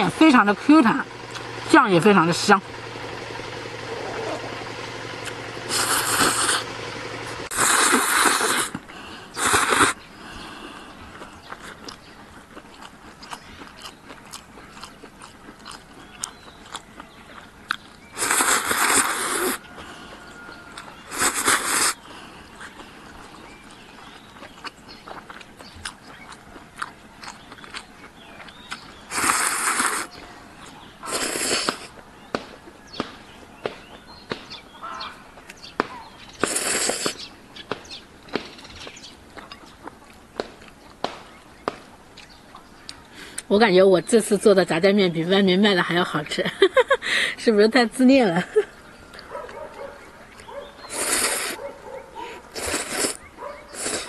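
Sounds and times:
quiet chewing: 5.2s - 6.7s, 7.5s - 43.5s, 48.6s - 54.0s
person slurping noodles: 5.7s - 6.7s, 7.5s - 10.0s, 18.2s - 19.6s, 21.1s - 22.0s, 29.1s - 30.1s, 31.0s - 31.9s, 36.4s - 37.2s, 50.9s - 51.6s, 52.5s - 54.0s.

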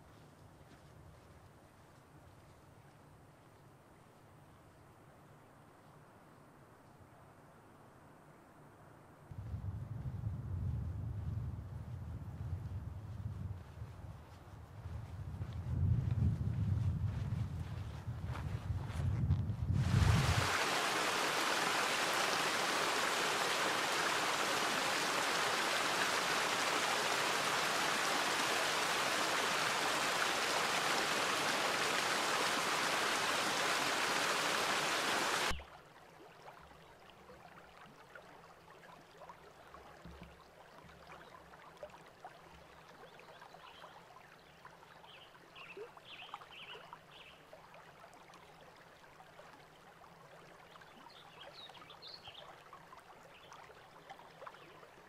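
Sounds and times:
gently flowing stream: 19.7s - 55.0s
waterfall splashing over rocks: 19.8s - 35.6s.

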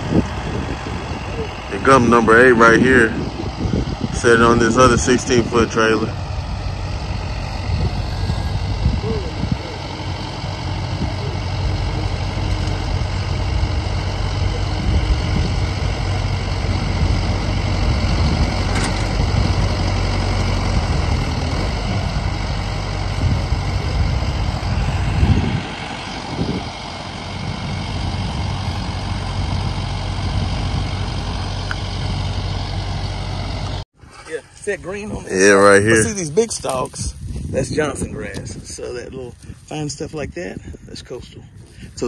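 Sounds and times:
tractor engine running: 0.0s - 33.9s.

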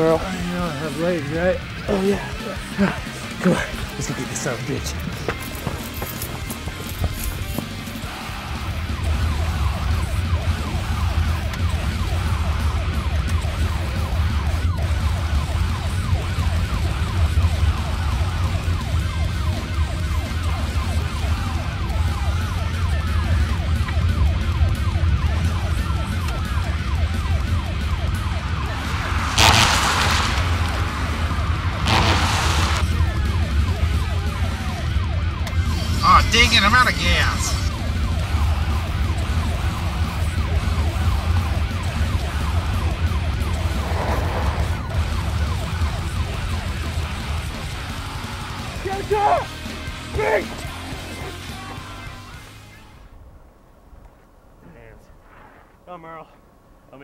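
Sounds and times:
siren wailing: 7.2s - 47.6s
car driving on road: 23.7s - 36.0s, 37.4s - 48.8s
loud rushing whooshes: 28.2s - 33.0s, 43.6s - 45.0s.

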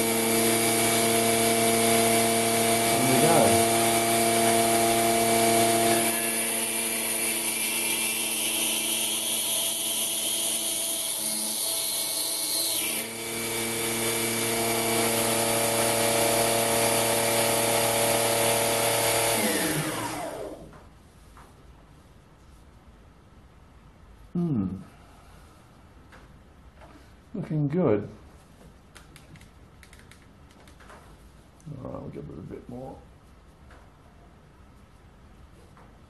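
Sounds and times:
lathe machine hum: 0.0s - 20.6s.

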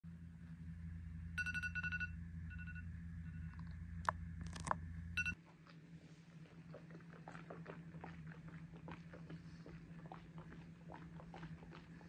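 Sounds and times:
steady low hum: 0.1s - 12.0s
alarm beeping: 1.4s - 3.6s.

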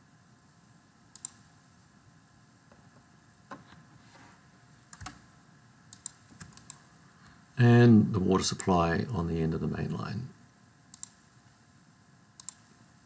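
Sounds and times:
computer mouse clicking: 1.1s - 1.5s, 4.9s - 5.2s, 5.9s - 6.8s, 10.9s - 11.2s, 12.4s - 12.7s.

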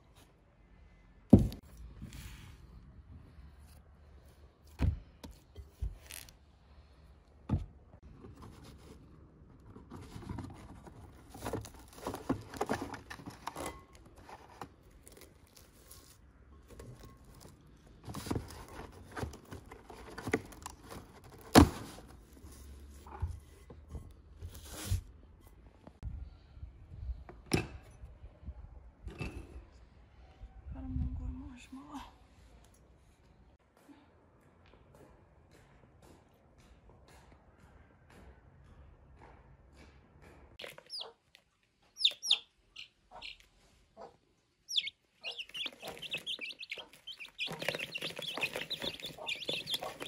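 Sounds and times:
cling film crinkling: 44.7s - 50.0s.

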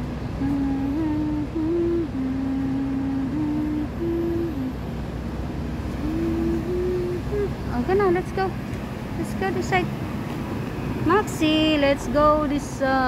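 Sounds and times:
city traffic rumble: 0.0s - 13.0s
woman humming: 0.4s - 4.8s, 5.9s - 8.5s.

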